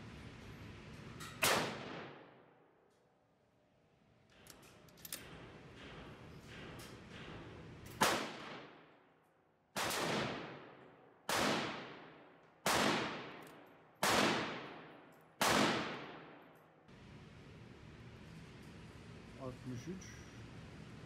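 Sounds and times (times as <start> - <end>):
rifle shots with ringing echo: 1.4 - 2.7, 5.2 - 9.1, 9.7 - 16.9.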